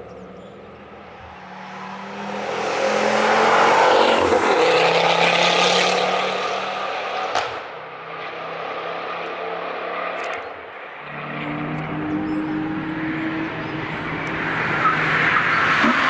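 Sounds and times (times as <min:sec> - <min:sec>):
car passing at speed: 0:00.7 - 0:16.0
sharp crack: 0:07.3 - 0:07.8.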